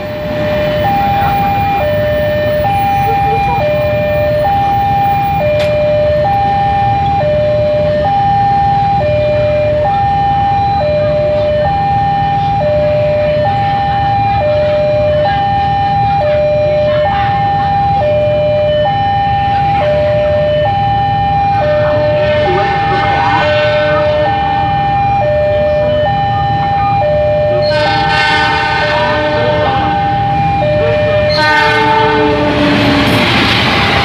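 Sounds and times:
train horn: 21.6 - 24.6, 27.5 - 33.2.

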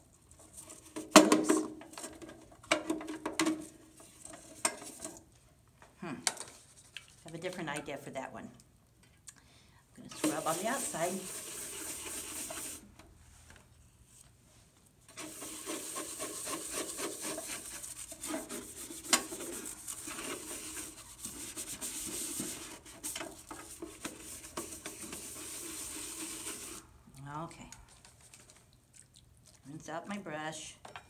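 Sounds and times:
brush scrubbing plastic panel: 10.2 - 12.9, 15.1 - 26.9.

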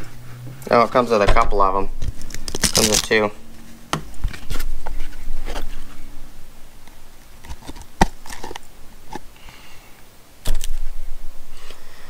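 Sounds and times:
rustles of handled objects: 2.0 - 9.4.

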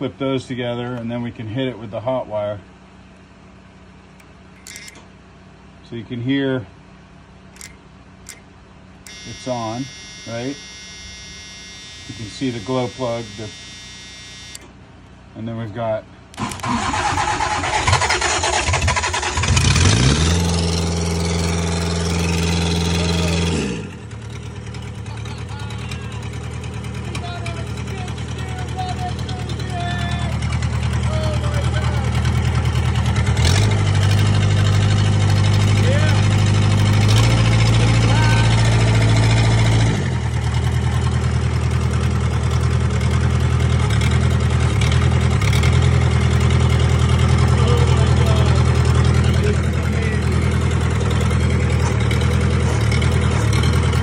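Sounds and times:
diesel engine running: 0.0 - 54.0
starter cranking: 4.6 - 5.1, 7.5 - 14.7, 16.3 - 22.1, 43.9 - 54.0.

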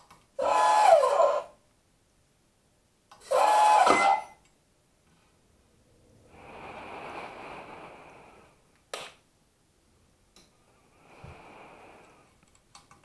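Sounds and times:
soft hissing sound effect: 5.1 - 8.7, 10.6 - 12.4.

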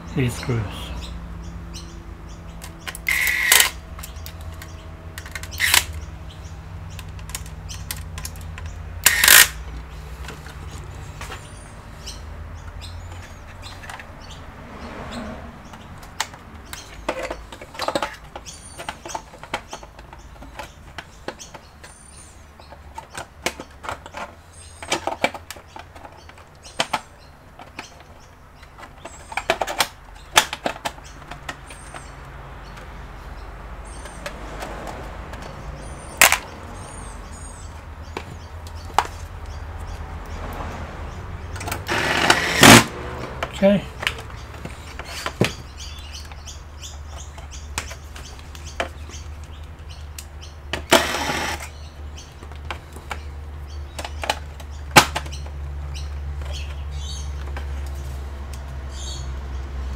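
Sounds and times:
electric screwdriver driving screws: 3.0 - 3.8, 9.0 - 9.6, 41.8 - 43.0, 50.8 - 51.7.

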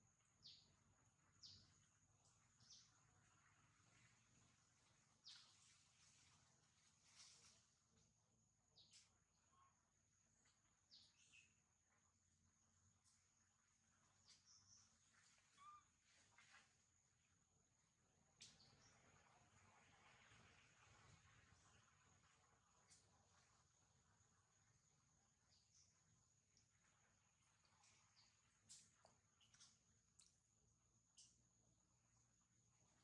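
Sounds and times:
faint high chirps: 8.7 - 11.7, 14.1 - 16.6, 27.6 - 31.6.

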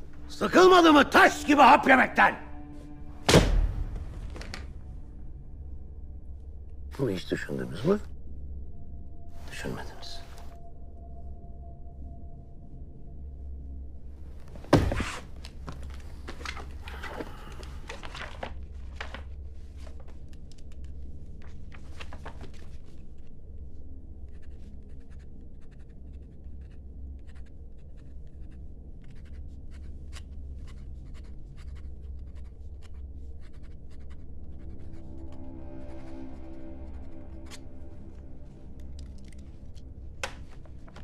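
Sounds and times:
low room hum: 0.0 - 41.0
loud thud: 3.2 - 4.4
pen scratching on paper: 24.3 - 36.0.

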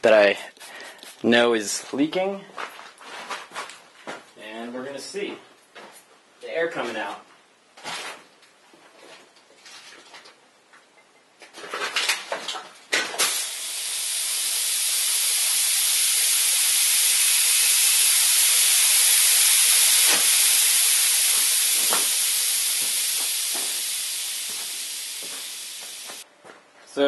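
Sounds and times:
air hissing from leaking joint: 13.2 - 26.2
spray bottle squirts: 13.2 - 26.2.

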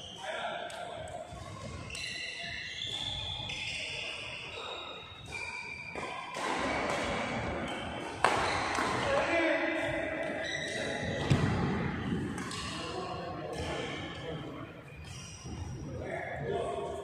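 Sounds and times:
shoe squeaks: 0.0 - 8.8, 9.4 - 17.0
voices in a large hall: 0.0 - 17.0
racket striking shuttlecock: 5.3 - 9.0.

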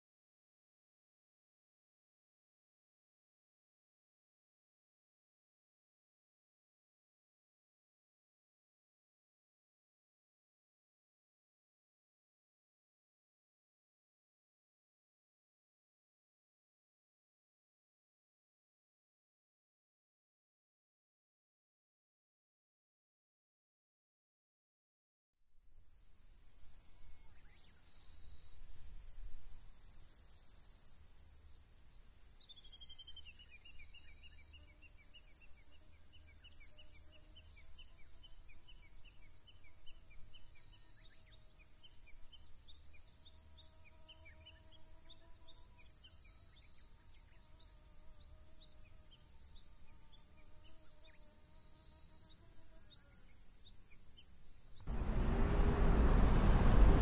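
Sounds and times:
insects chorus: 25.5 - 57.0.

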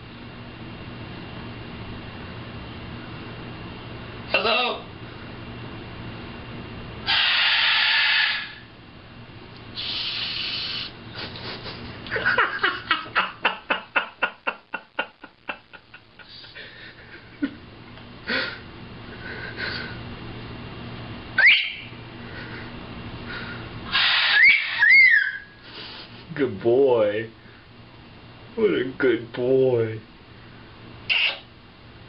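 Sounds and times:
parrot chirps: 7.1 - 8.6, 9.8 - 10.9, 21.4 - 22.0, 23.9 - 25.6, 31.1 - 31.5
parrot hissing: 7.1 - 8.7, 9.7 - 11.5, 21.4 - 22.6, 23.3 - 26.2, 31.1 - 31.5
rising whistle: 21.4 - 21.9, 24.1 - 25.5.

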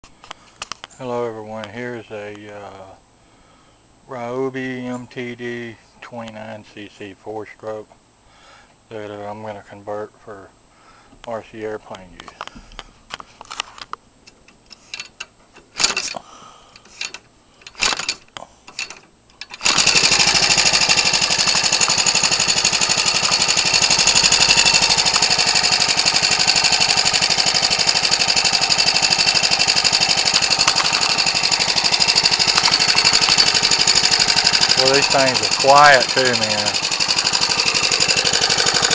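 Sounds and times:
propeller flip clicks: 16.8 - 38.9
small engine running: 19.5 - 38.9.

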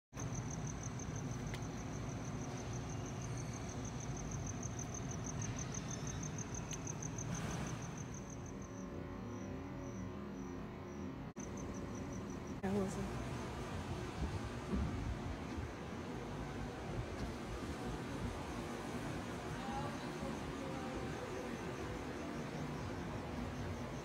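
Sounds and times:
cricket chirping: 0.2 - 13.7, 18.4 - 24.0
low outdoor rumble: 0.2 - 24.0.

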